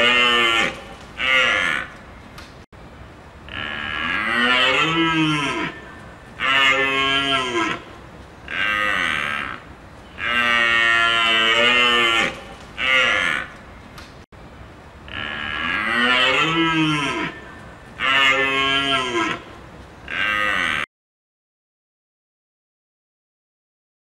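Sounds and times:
large animal bellowing: 0.0 - 2.0, 3.5 - 13.6, 15.1 - 19.5, 20.1 - 20.9.

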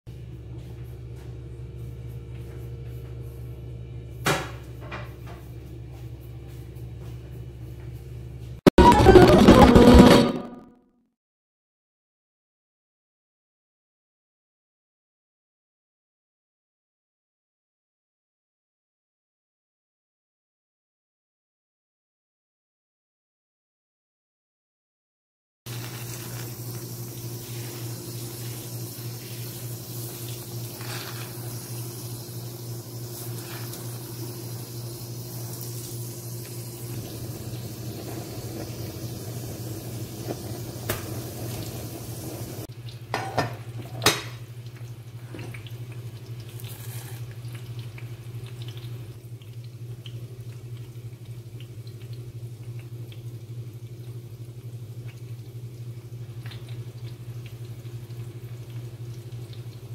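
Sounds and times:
metal pot and utensils clinking: 43.1 - 44.4.

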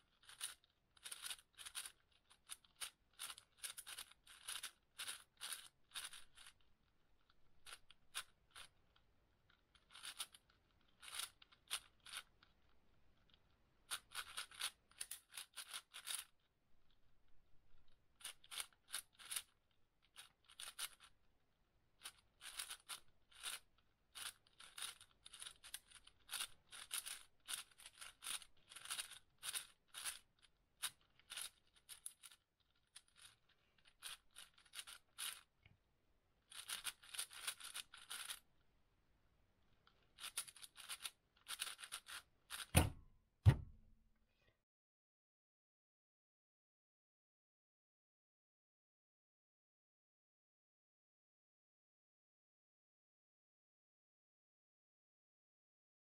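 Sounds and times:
plastic puzzle cube clicking: 0.1 - 6.6, 7.2 - 16.9, 18.2 - 21.1, 22.0 - 35.5, 36.5 - 38.4, 40.2 - 43.7.

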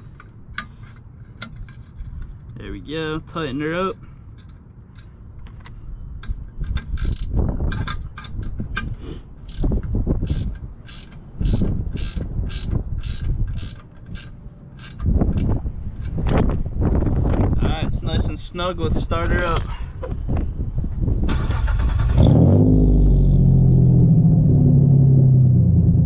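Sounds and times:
clamp tightening clicks: 4.4 - 15.5.

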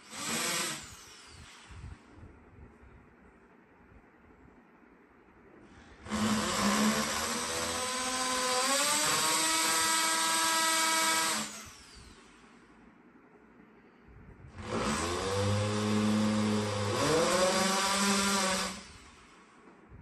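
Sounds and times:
electric drill boring wood: 0.0 - 1.7, 6.0 - 12.4, 14.6 - 19.3.

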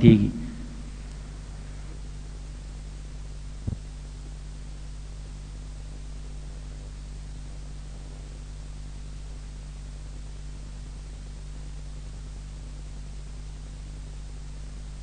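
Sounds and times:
background hiss and hum: 0.0 - 15.0
brief low thump: 3.6 - 3.8.

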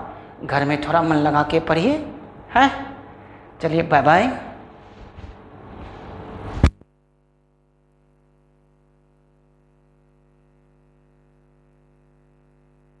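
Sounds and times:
faint electrical hum: 0.0 - 13.0
microphone knock: 6.5 - 6.8.

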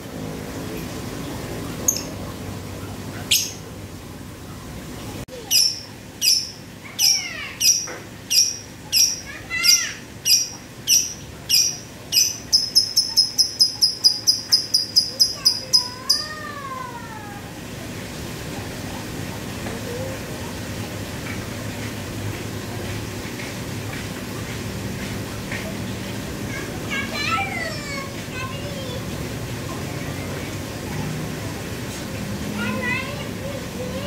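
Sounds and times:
lovebird chirps: 10.3 - 16.2.

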